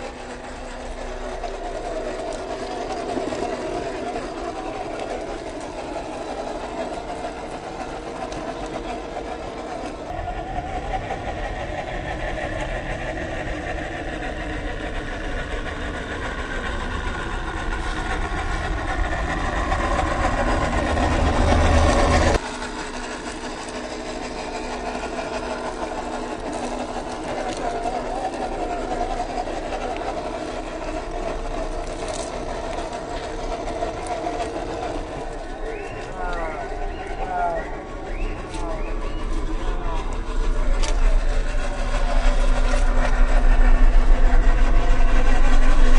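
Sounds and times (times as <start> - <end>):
wheels crawling over gravel: 0.0 - 10.3, 14.0 - 45.9
toy car motor whining: 25.2 - 44.0.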